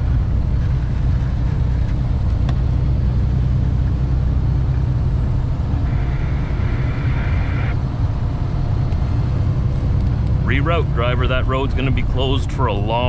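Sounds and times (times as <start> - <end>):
road noise: 0.0 - 13.0
truck diesel engine rumble: 0.0 - 13.0.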